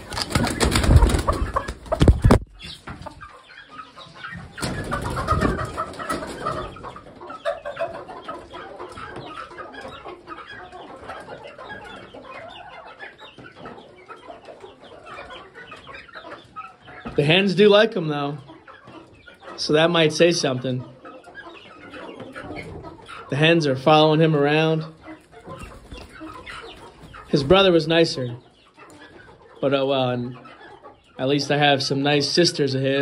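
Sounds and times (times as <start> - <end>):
rooster flapping wings: 0.0 - 2.5
chickens clucking softly: 0.0 - 33.0.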